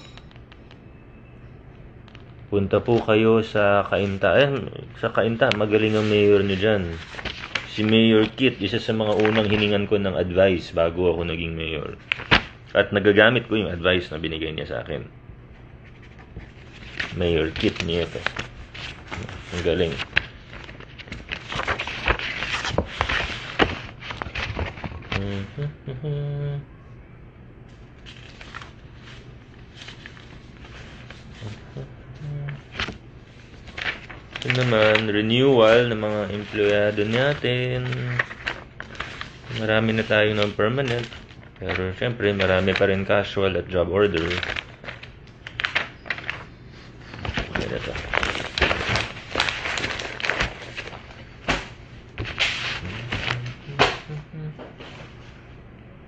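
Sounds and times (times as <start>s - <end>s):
low steady hum: 0.0s - 56.0s
low hum of a voice: 2.5s - 12.0s, 19.1s - 20.2s, 25.0s - 27.4s, 31.2s - 32.8s, 34.4s - 38.6s, 47.2s - 48.2s, 52.7s - 56.0s.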